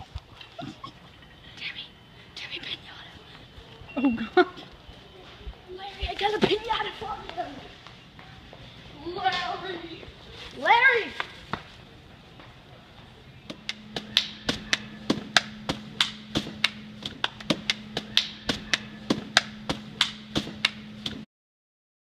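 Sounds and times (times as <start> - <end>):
hands slapping hollow pinata: 13.5 - 21.2.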